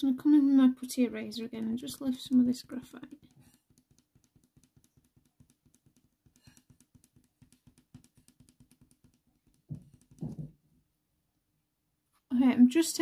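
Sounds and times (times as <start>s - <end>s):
eraser tapping on paper: 1.5s - 10.5s.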